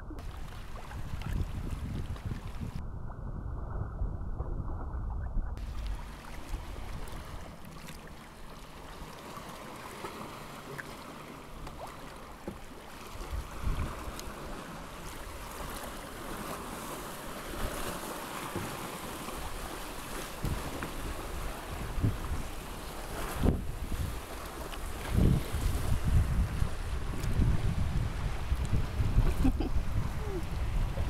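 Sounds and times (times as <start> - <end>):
wind noise on microphone: 0.0 - 7.5, 13.1 - 31.0
waves splashing against rocks: 5.6 - 31.0.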